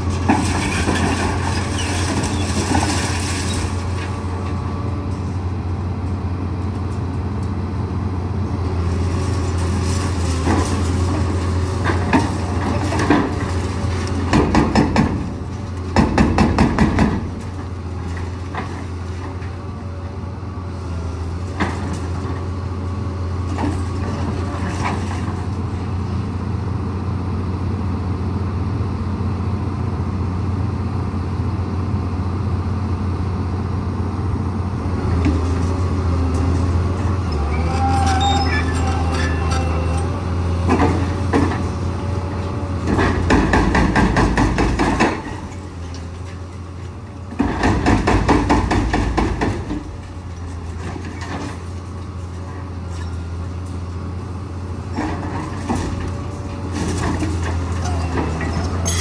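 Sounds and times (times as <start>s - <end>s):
diesel engine running: 0.0s - 59.0s
brief high tone: 37.5s - 40.2s, 58.6s - 59.0s.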